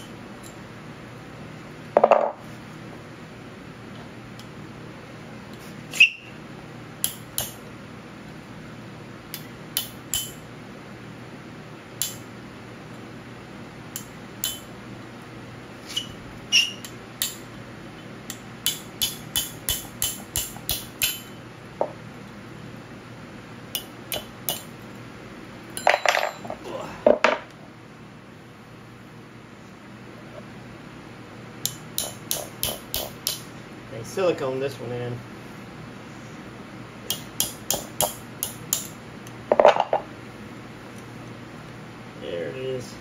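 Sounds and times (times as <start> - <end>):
hammer striking steel punch: 9.8 - 10.4, 14.0 - 14.7, 18.6 - 21.4, 31.7 - 33.4, 37.1 - 38.9.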